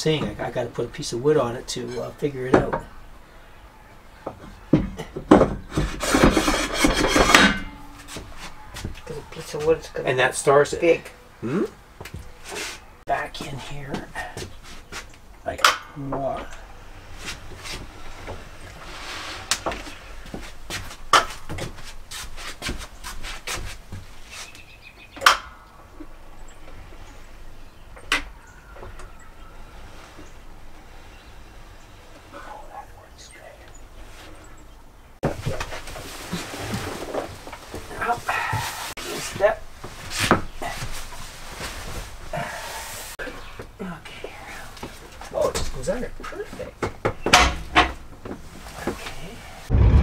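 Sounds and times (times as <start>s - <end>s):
rubbing and scraping: 5.6s - 9.9s, 17.1s - 24.7s.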